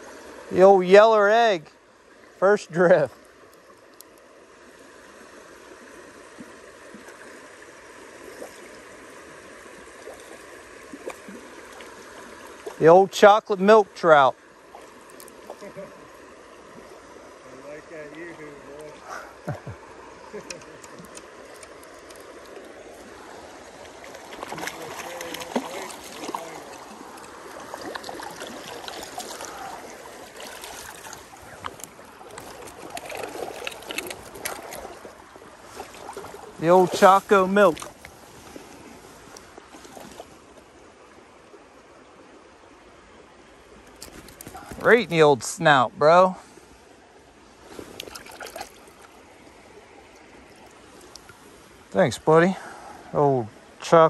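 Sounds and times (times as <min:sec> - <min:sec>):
creek water flowing: 0:00.0 - 0:54.0
water gurgles and plinks: 0:18.9 - 0:40.8, 0:47.6 - 0:52.0.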